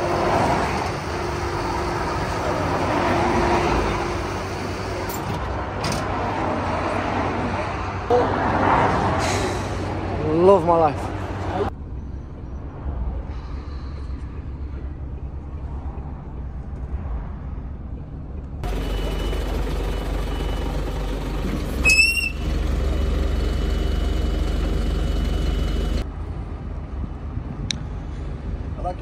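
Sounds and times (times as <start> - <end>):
vehicle engine rumbling: 0.0 - 29.0
short rising squeal: 21.7 - 22.6.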